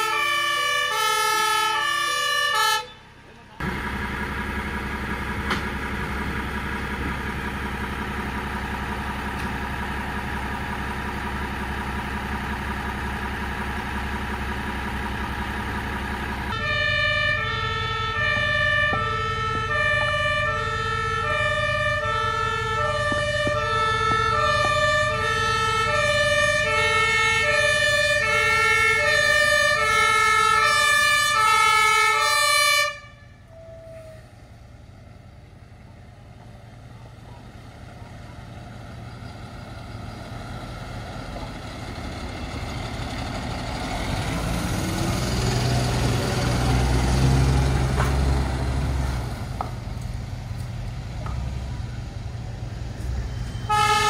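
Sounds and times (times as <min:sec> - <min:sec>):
two-tone siren: 0:00.0 - 0:03.0, 0:16.5 - 0:34.4, 0:53.1 - 0:54.0
diesel engine running: 0:00.0 - 0:54.0.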